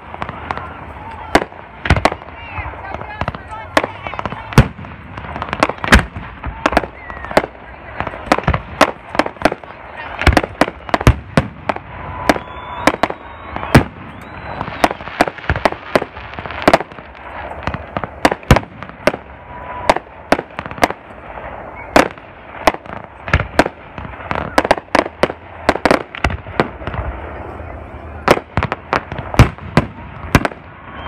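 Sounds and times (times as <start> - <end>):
fireworks bursting with bangs: 0.0 - 31.0
fireworks crackle: 0.0 - 31.0
thin firework whistle: 6.5 - 7.6, 11.7 - 15.7, 19.2 - 22.2, 24.2 - 25.1, 30.4 - 31.0.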